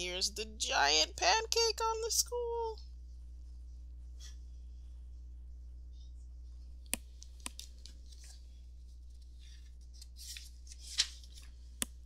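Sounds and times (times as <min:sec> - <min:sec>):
faint low hum: 0:00.0 - 0:12.0
paper rustling: 0:07.2 - 0:11.7.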